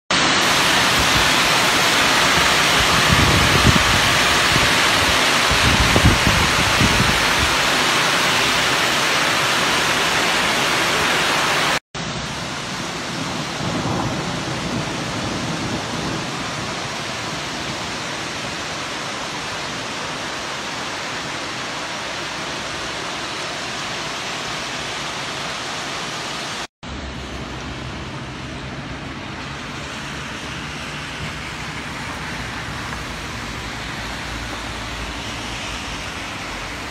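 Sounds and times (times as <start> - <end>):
steady rain: 0.1 - 36.9
hail and rain downpour: 0.2 - 28.6, 29.2 - 36.9.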